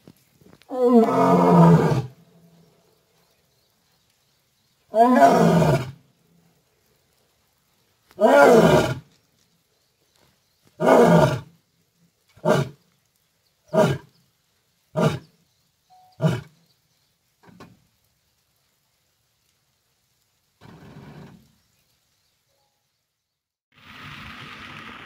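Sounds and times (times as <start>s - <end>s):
lion roaring: 0.7s - 2.1s, 4.9s - 6.0s.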